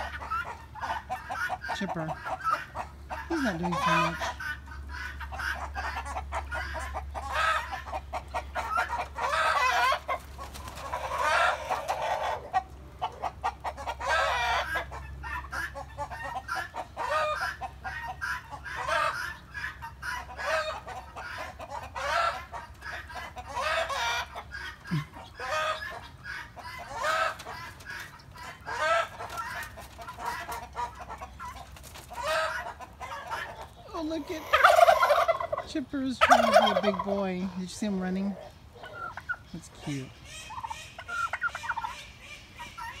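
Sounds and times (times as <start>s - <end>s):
chickens and turkeys clucking: 0.0s - 43.0s.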